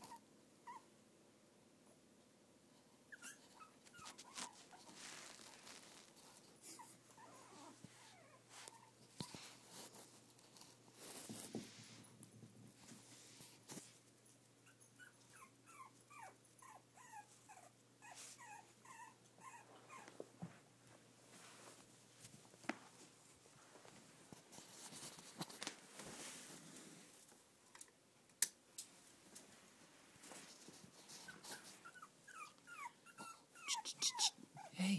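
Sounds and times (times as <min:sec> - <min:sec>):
puppy whimpering: 0:00.0 - 0:00.9, 0:03.1 - 0:05.8, 0:06.7 - 0:09.0, 0:14.6 - 0:20.2, 0:31.2 - 0:34.8
faint rustling: 0:03.5 - 0:14.5, 0:18.0 - 0:27.8, 0:28.8 - 0:34.3.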